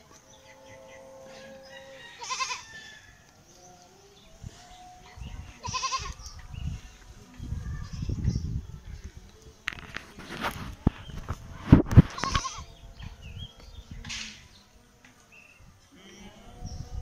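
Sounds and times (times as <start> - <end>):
goat bleating: 2.2 - 2.7, 5.5 - 6.2, 12.1 - 12.7.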